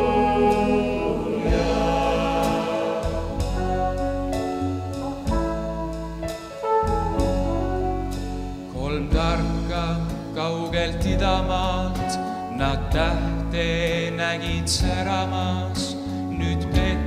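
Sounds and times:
bass: 0.0s - 17.0s
keyboard: 0.0s - 17.0s
trumpet solo melody: 3.3s - 9.4s.

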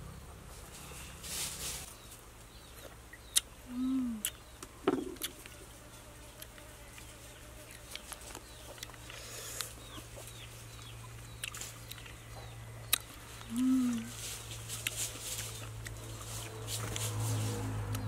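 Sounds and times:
steady low hum: 0.0s - 18.0s
person humming mmm: 3.6s - 4.4s, 13.4s - 14.2s
chewing: 6.4s - 10.0s, 10.8s - 17.1s
faint bird calls chirping: 7.0s - 14.4s.

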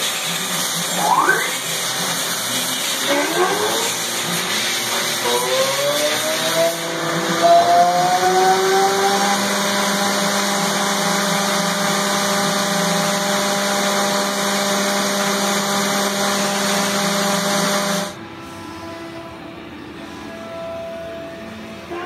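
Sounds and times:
coolant spray hiss: 0.0s - 7.3s
machine spindle whine: 0.0s - 22.0s.

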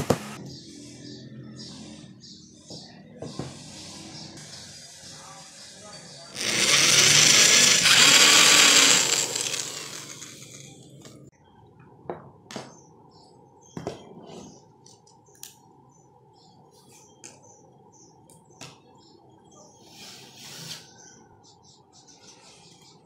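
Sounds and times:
power drill boring into wood: 6.4s - 10.7s.

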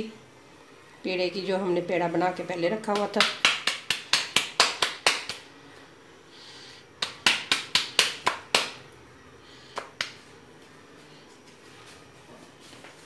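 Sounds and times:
hands slapping dough: 2.9s - 5.5s, 7.0s - 8.9s, 9.7s - 10.2s.

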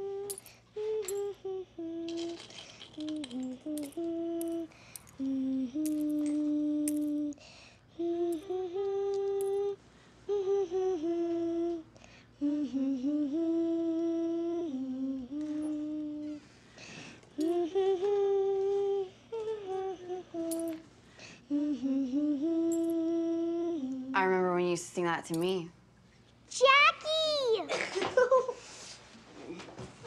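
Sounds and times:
woman humming: 0.0s - 16.4s, 17.4s - 20.8s, 21.5s - 24.7s.

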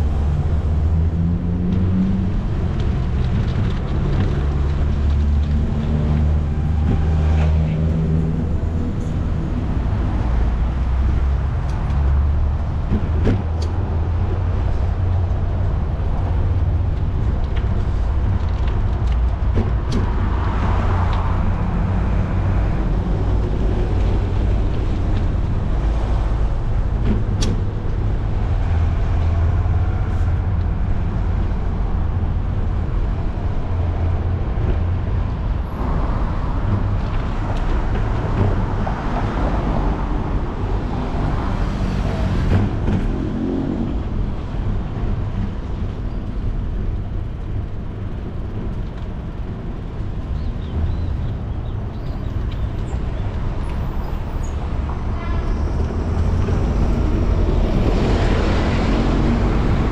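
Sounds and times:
city street traffic: 0.0s - 59.9s
wind rumbling on microphone: 0.0s - 59.9s
vehicle passing: 54.2s - 59.9s.

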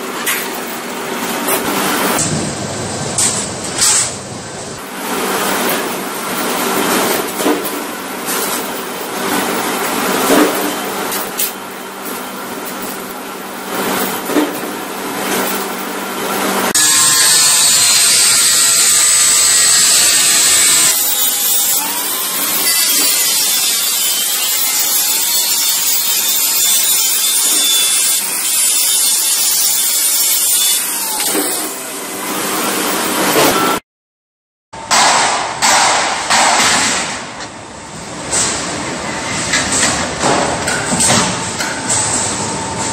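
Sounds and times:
angle grinder cutting steel: 16.7s - 33.4s.

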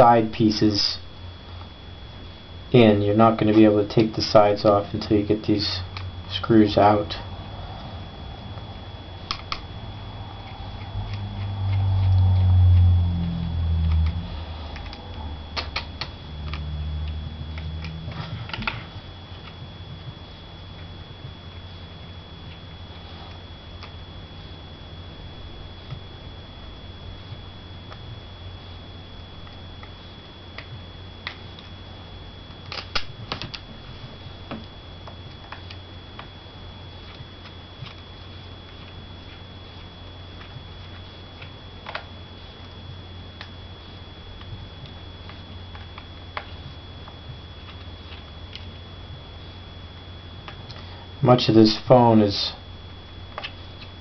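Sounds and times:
faint high whine: 0.0s - 54.0s
low rumble: 5.8s - 20.3s.

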